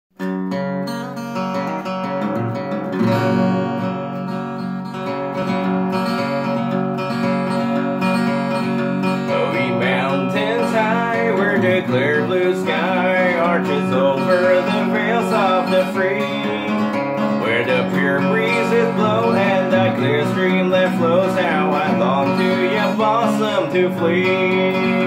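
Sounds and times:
acoustic guitar strumming: 0.2s - 25.0s
man singing: 9.0s - 25.0s.

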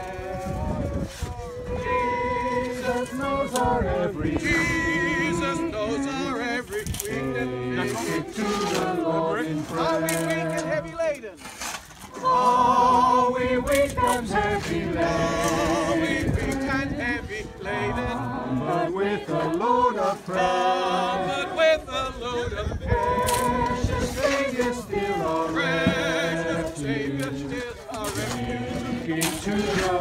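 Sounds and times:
group singing a hymn: 0.0s - 11.0s, 12.0s - 30.0s.

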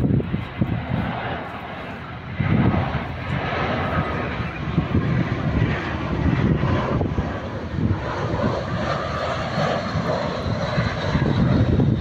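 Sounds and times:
airliner jet engines rumbling: 0.0s - 12.0s.

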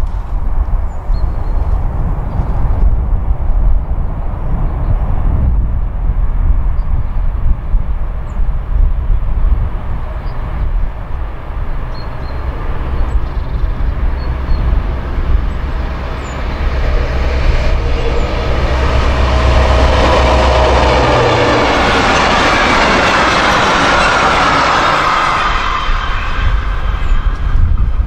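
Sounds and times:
diesel locomotive engine rumble: 0.0s - 28.0s
train wheels on rails: 9.3s - 28.0s.

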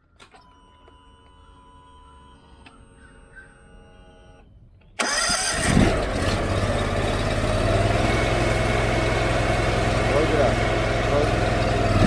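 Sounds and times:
engine cranking and running: 5.0s - 12.0s.

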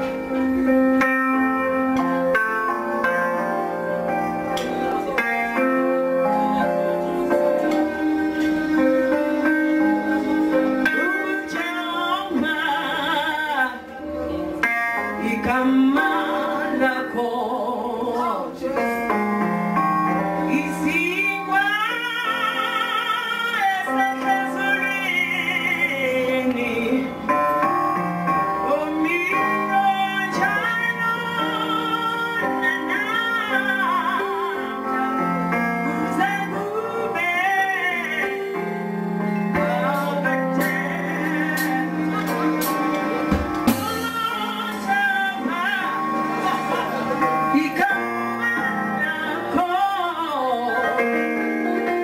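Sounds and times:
band accompaniment with bass: 0.0s - 52.0s
woman singing with vibrato: 7.8s - 19.1s, 20.4s - 27.6s, 28.4s - 52.0s.

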